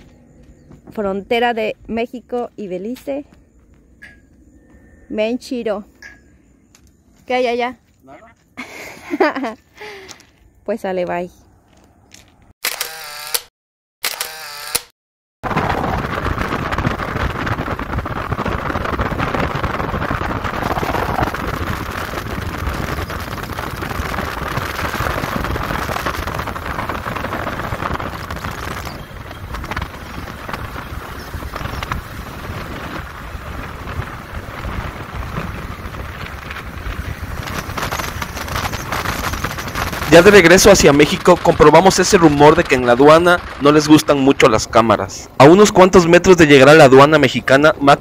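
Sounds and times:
wind rush: 15.4 - 48.0
road noise: 19.6 - 45.6.

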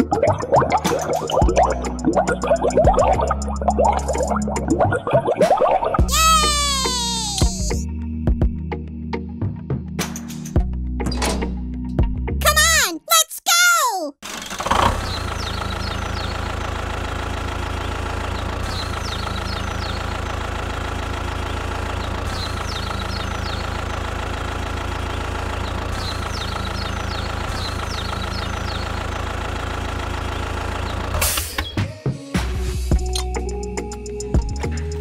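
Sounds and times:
tractor engine idling: 15.2 - 31.2.

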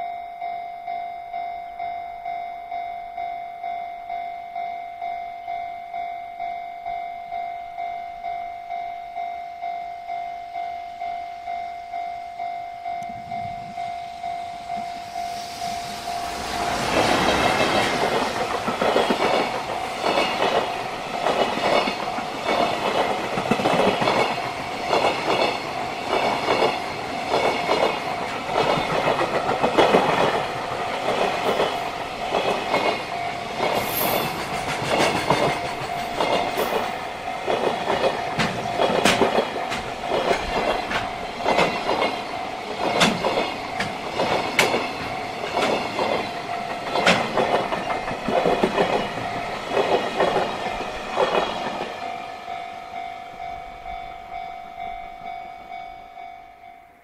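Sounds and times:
train wheels clattering over rail joints: 16.3 - 52.0.

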